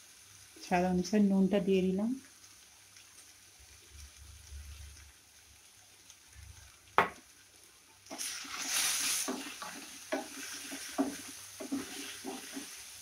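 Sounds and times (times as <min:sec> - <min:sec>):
greens sizzling in oil: 0:00.0 - 0:13.0
wooden spatula scraping: 0:08.1 - 0:13.0.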